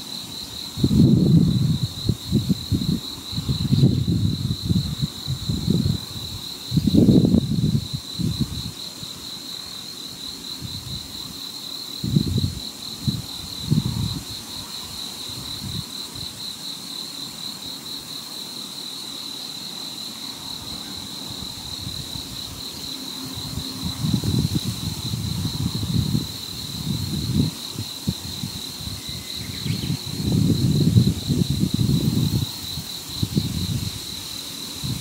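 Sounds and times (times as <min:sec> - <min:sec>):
wind rumble on microphone: 0:00.4 - 0:09.2, 0:10.5 - 0:11.4, 0:12.0 - 0:16.5, 0:20.6 - 0:35.0
insect trilling: 0:20.3 - 0:35.0.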